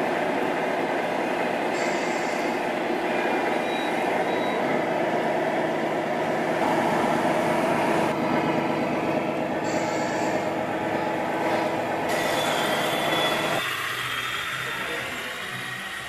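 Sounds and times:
simulated diesel truck engine: 0.0 - 16.0.

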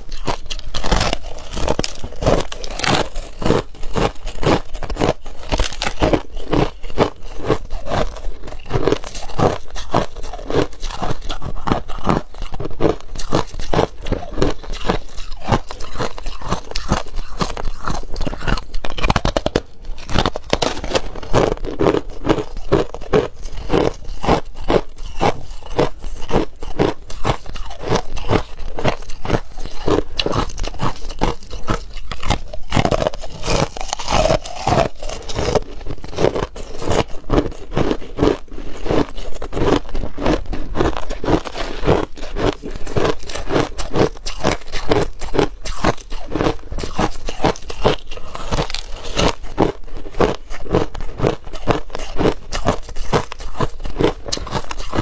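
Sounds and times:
crushed ice crunching: 0.0 - 55.0.

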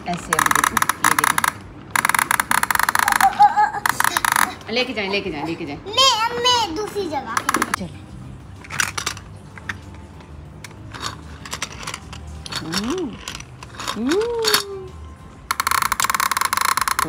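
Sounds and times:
plastic toy track clicks: 0.1 - 4.6, 7.4 - 7.8, 15.5 - 17.0.

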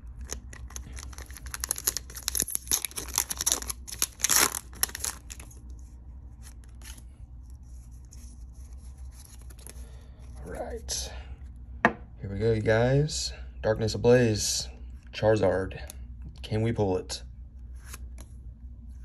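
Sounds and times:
foil wrapper crinkling: 0.2 - 5.7.

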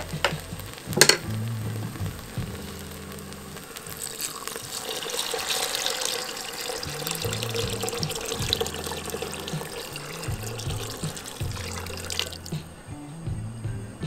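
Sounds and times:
sharp clack: 0.0 - 2.8
stock pouring into a pot: 3.6 - 12.6.

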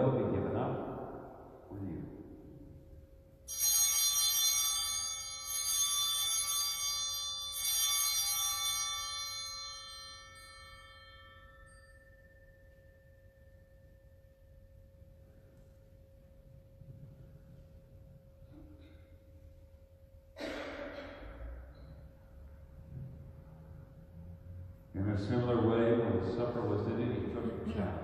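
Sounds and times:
altar bells ringing: 3.3 - 17.1.

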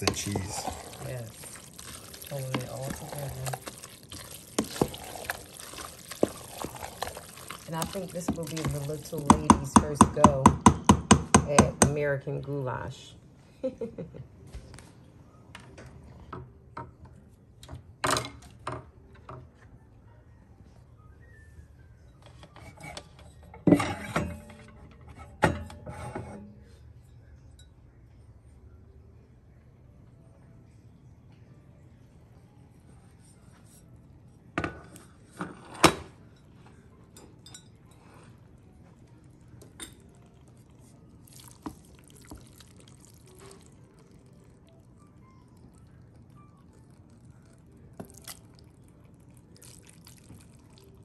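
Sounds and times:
wooden spoon stirring in a pot: 0.0 - 10.4, 37.8 - 44.6
ceramic mugs clinking: 34.6 - 38.4.

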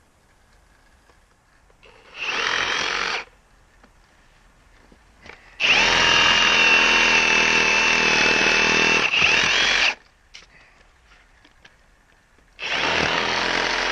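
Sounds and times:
reciprocating saw cutting wood: 1.8 - 3.3, 5.6 - 10.0, 12.6 - 13.9.

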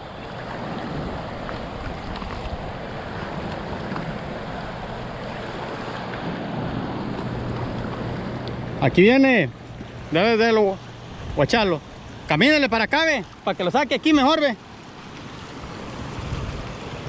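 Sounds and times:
river water rushing: 0.0 - 17.0
wind buffeting microphone: 15.4 - 17.0.

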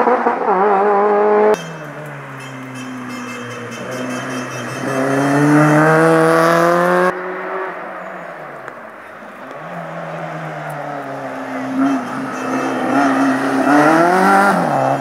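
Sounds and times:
rally car engine accelerating: 0.0 - 8.3, 9.3 - 15.0
faint rally car approaching: 0.0 - 15.0.

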